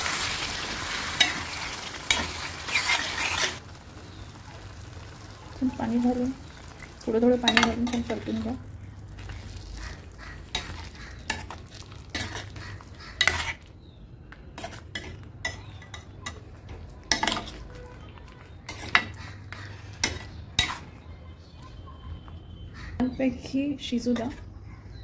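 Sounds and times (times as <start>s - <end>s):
spoon scraping steel pan: 9.8s - 13.7s.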